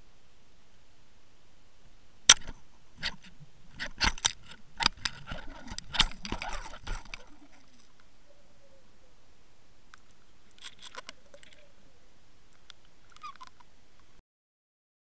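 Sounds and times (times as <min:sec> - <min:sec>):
underwater clicks and knocks: 0:02.3 - 0:08.1.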